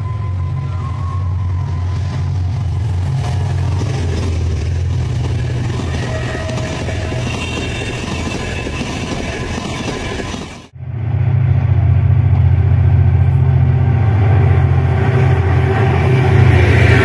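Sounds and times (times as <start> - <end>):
train wheels on rails: 0.0 - 10.8
diesel locomotive engine: 0.0 - 17.0.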